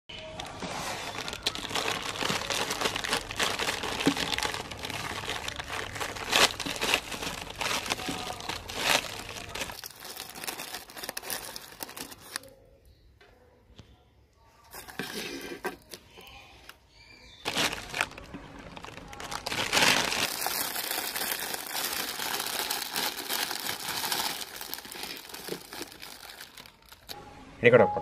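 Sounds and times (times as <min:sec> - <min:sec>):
plastic packet crinkling: 0:00.2 - 0:12.5, 0:17.4 - 0:27.2
plastic packet ripping: 0:00.3 - 0:12.5, 0:17.4 - 0:27.2.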